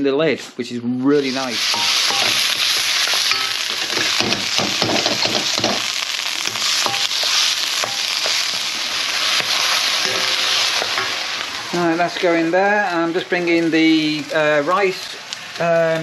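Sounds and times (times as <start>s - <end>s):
wooden spatula scraping a pan: 1.2s - 12.3s
chicken sizzling in a wok: 1.2s - 16.0s.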